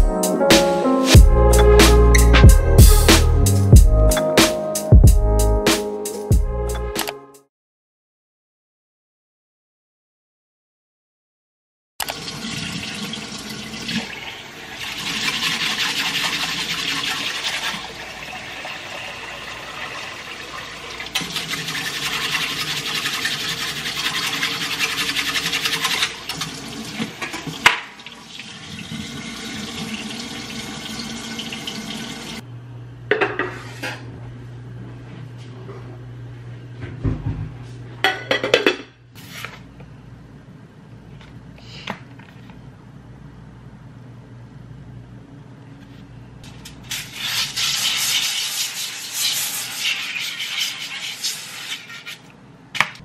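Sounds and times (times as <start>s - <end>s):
tap water running into saucepan: 12.0s - 32.4s
whisk stirring rice in water: 14.8s - 18.0s, 21.2s - 26.3s, 46.9s - 52.3s.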